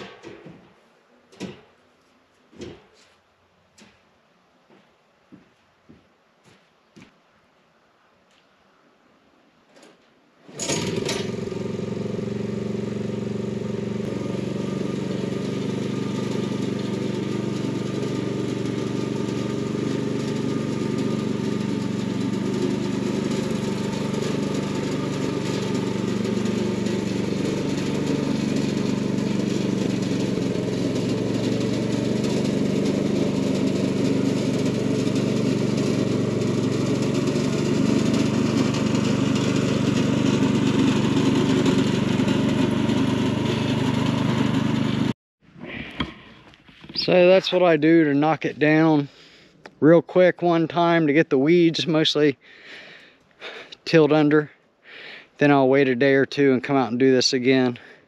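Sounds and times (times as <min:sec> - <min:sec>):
small gasoline engine running: 0:10.5 - 0:45.2.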